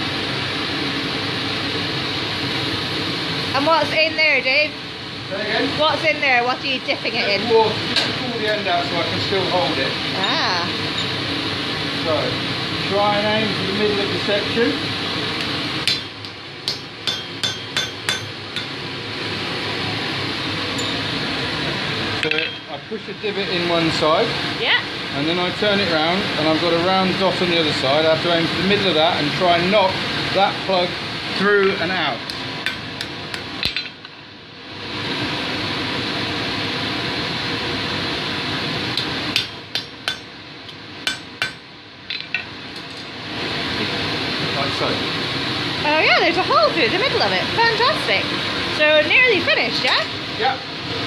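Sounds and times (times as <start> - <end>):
hammer ringing on hot steel: 15.8 - 18.8, 20.7 - 21.1, 39.3 - 40.4, 41.0 - 41.7.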